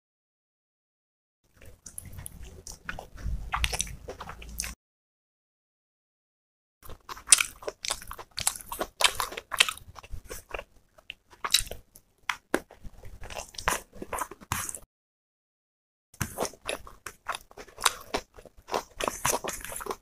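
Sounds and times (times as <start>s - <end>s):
crunchy chewing: 1.5s - 4.8s, 6.8s - 14.8s, 16.2s - 20.0s.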